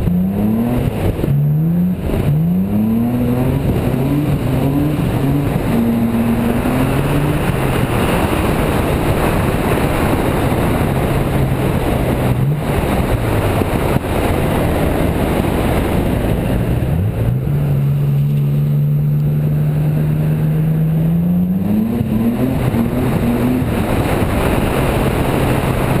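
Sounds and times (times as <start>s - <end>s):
car engine driving: 0.0s - 26.0s
wind and road noise: 0.0s - 26.0s.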